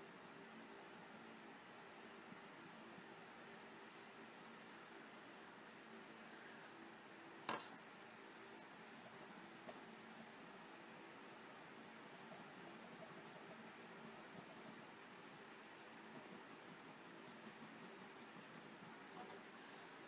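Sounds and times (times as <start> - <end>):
pencil scratching on paper: 8.4 - 18.9.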